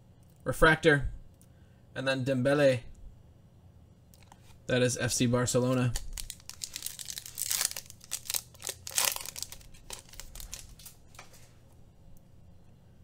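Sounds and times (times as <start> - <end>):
foil wrapper tearing and crinkling: 5.9 - 11.0.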